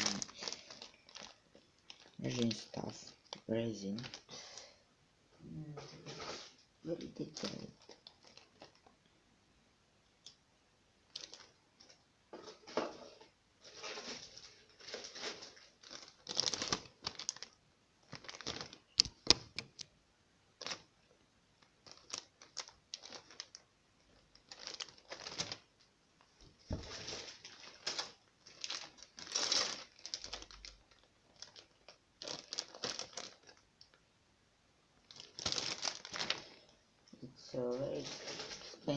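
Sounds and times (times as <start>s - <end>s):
plastic bags crinkling: 0.0s - 4.8s, 6.0s - 9.0s, 11.1s - 19.8s, 20.6s - 25.8s, 26.7s - 34.0s, 35.0s - 36.8s, 37.6s - 38.9s.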